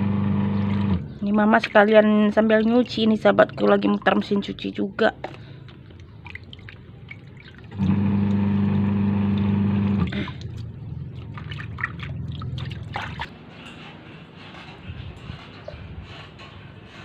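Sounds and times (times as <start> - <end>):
washing machine motor hum: 0.0 - 4.6, 6.2 - 17.0
water splashing in basin: 0.6 - 13.3.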